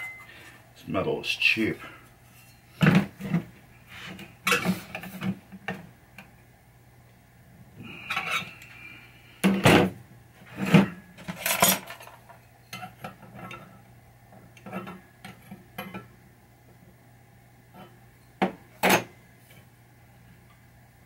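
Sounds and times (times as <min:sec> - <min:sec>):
short ringing tone: 0:00.0 - 0:00.3
loose metal parts clinking: 0:11.2 - 0:12.8.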